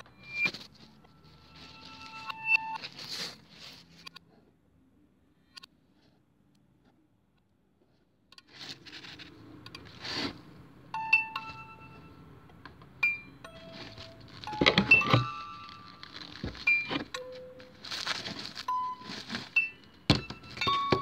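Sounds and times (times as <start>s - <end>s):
clinks and knocks: 12.6s - 21.0s.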